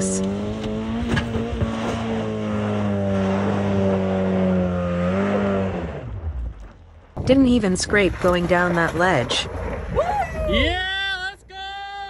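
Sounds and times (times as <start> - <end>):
car engine at high revs: 0.0 - 7.0.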